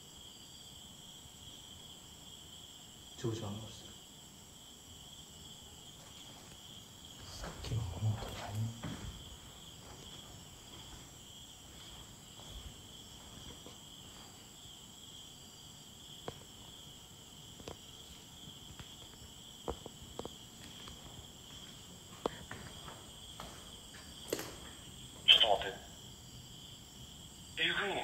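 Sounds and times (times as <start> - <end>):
night insects chirring: 0.0 - 28.0.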